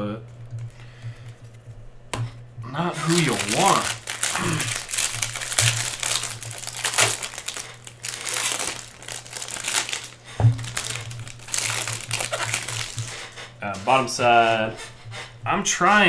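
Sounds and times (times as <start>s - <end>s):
foil wrapper crinkling: 2.7s - 14.1s.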